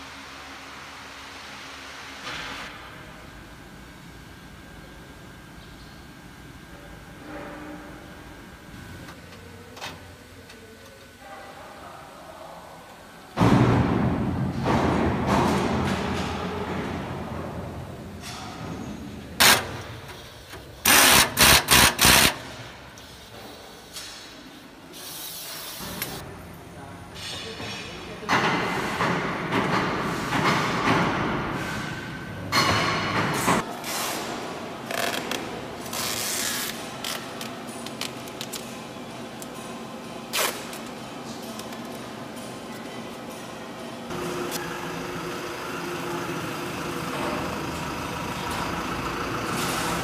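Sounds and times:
low factory hum: 0.0 - 50.0.

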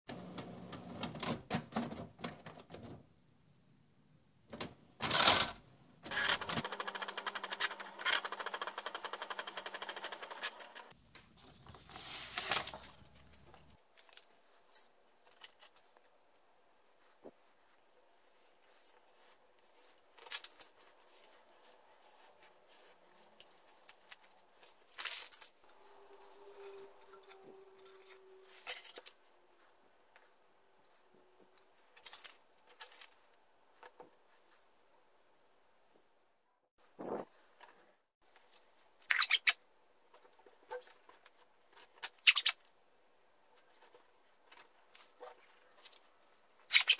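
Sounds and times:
paper rustling: 10.2 - 16.0, 16.9 - 30.3.

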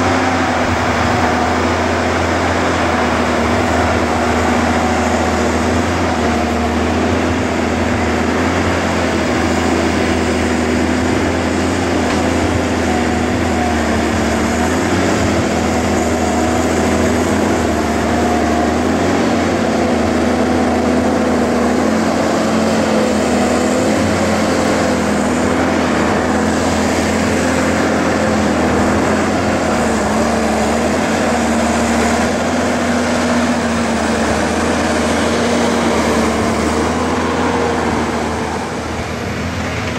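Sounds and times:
diesel engine running under load: 0.0 - 39.9.

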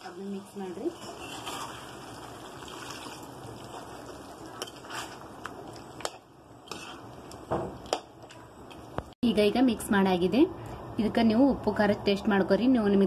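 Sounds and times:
metal spoon stirring in pan: 0.3 - 8.8.

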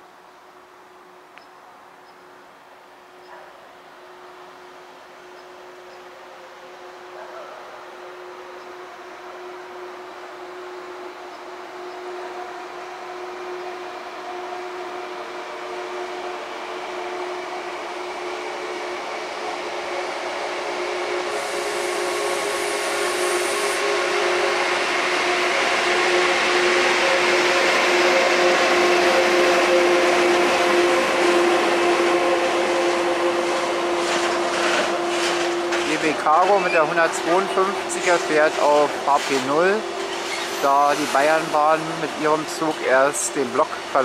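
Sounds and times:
freight train passing: 0.0 - 44.0
high hiss: 21.3 - 23.8.

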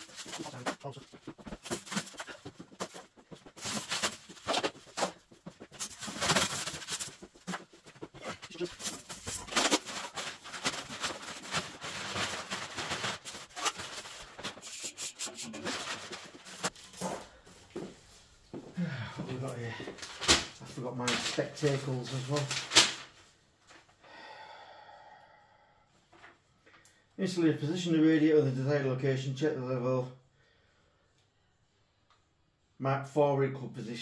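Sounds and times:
rustling and rubbing: 0.0 - 18.4.

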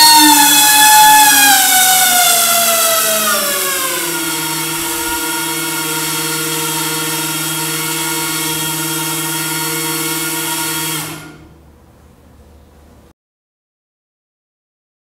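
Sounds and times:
small motor spinning propeller: 0.0 - 11.5.

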